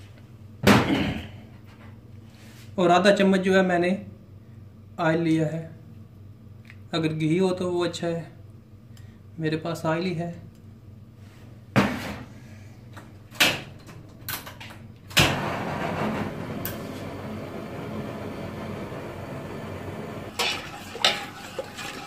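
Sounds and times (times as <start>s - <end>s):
gas burner rushing: 15.1s - 22.0s
kitchenware clatter: 20.3s - 22.0s.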